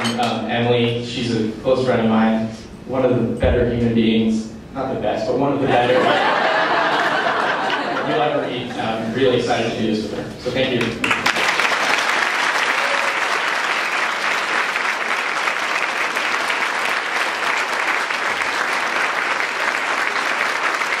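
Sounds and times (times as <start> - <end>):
audience applauding: 10.8 - 21.0.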